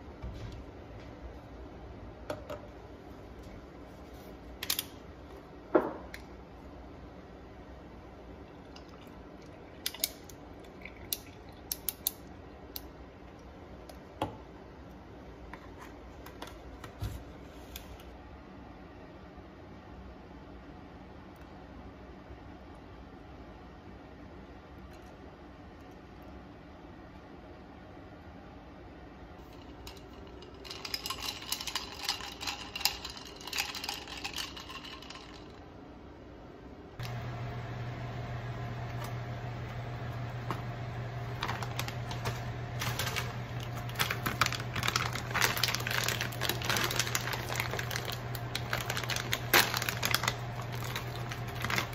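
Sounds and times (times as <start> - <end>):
ice cubes clicking in a glass: 29.8 - 35.6, 42.8 - 51.9.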